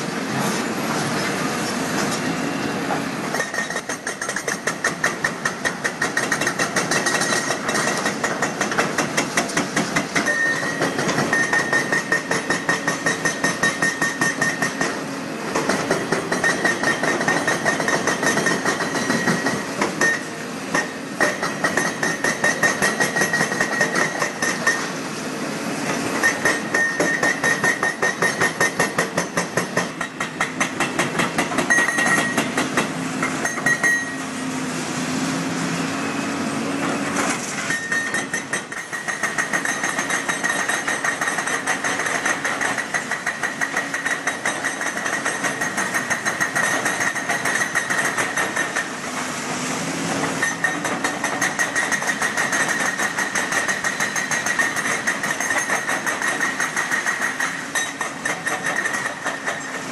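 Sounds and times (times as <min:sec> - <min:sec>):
hydraulic breaker hammering concrete: 0:03.0 - 0:25.0, 0:25.9 - 0:34.2, 0:36.8 - 0:49.1, 0:50.2 - 0:59.9
ringing metallic tone: 0:33.5 - 0:34.2.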